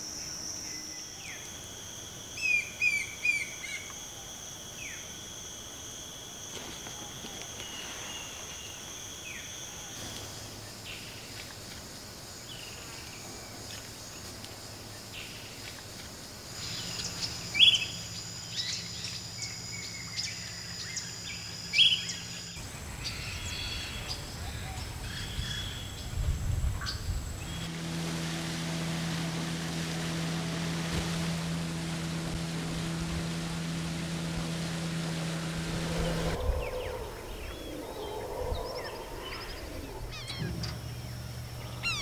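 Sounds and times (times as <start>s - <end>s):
insects buzzing in high trills: 0.0s - 42.0s
birds calling: 29.2s - 42.0s.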